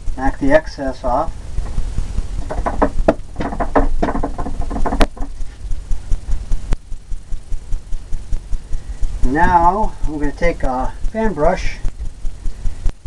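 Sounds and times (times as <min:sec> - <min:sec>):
low steady hum: 0:00.0 - 0:13.0
paint brush knocking: 0:01.6 - 0:05.6.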